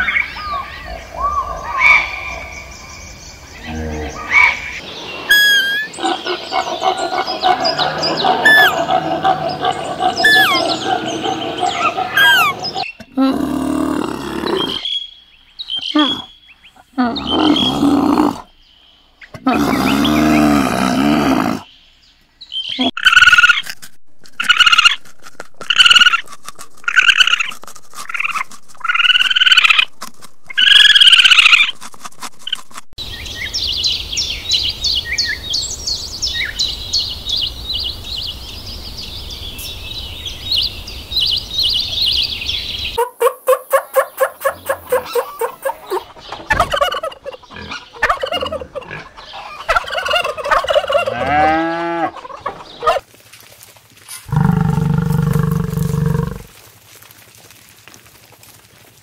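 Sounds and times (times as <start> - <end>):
turkey gobbling: 5.3 - 12.9, 43.0 - 51.4, 52.1 - 53.0.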